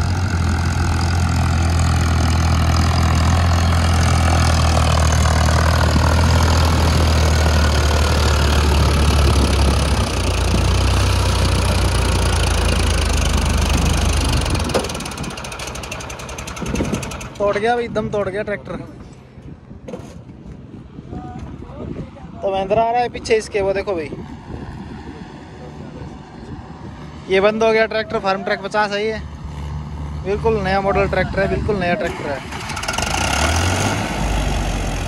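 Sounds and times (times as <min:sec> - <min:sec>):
tractor diesel engine labouring: 0:00.0 - 0:18.4, 0:28.0 - 0:35.0.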